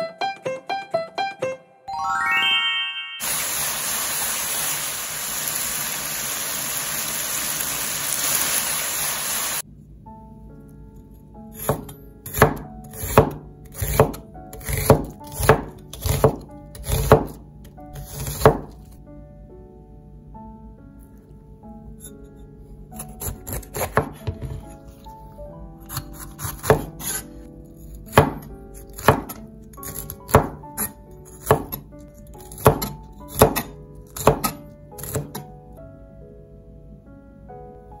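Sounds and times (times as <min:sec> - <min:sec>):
light background music: 0:00.0 - 0:03.2, 0:09.6 - 0:38.0
food sizzling in a pan: 0:03.2 - 0:09.6
knife chopping onion on board: 0:11.6 - 0:17.4, 0:18.0 - 0:18.8, 0:23.0 - 0:24.8, 0:25.9 - 0:27.3, 0:28.1 - 0:35.4.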